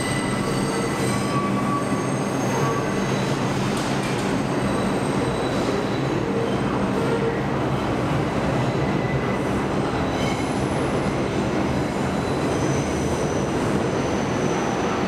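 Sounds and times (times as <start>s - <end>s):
high wheel squeal: 0.0s - 3.5s
train wheels rumbling on rail: 0.0s - 15.0s.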